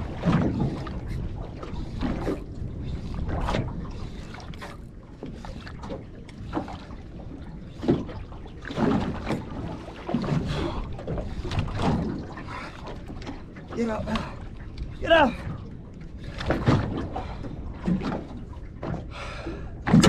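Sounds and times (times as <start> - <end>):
wind on microphone: 0.0 - 4.8
water slapping against boat hull: 0.0 - 20.0.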